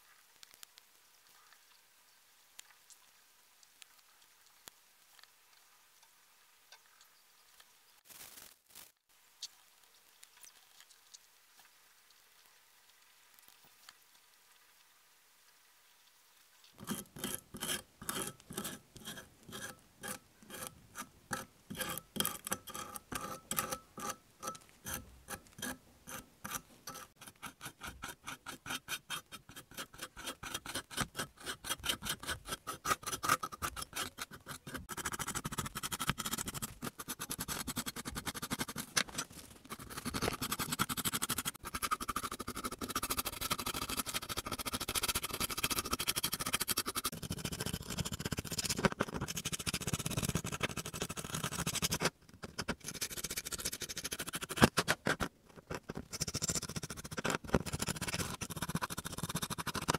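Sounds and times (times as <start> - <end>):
brush scrubbing paint: 16.8 - 55.2, 55.8 - 59.9.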